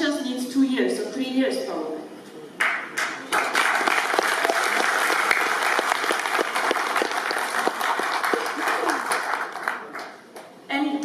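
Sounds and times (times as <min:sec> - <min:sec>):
audience applauding: 0:02.6 - 0:10.5.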